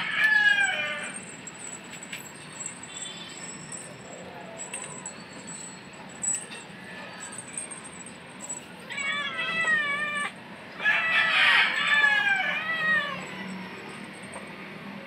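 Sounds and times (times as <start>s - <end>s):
young cats meowing: 8.8s - 14.0s.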